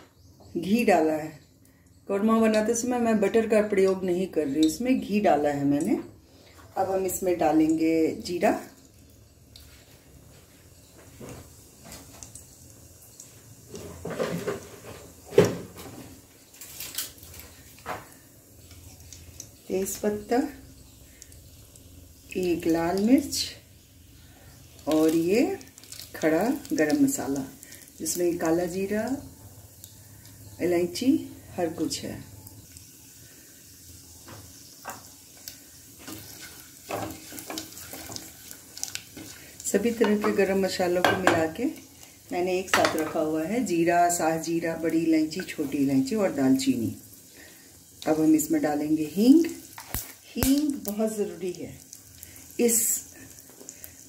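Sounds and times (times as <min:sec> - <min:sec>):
seeds sizzling in hot oil: 0:00.2 - 0:54.0
wooden spatula scraping pot: 0:36.0 - 0:38.5.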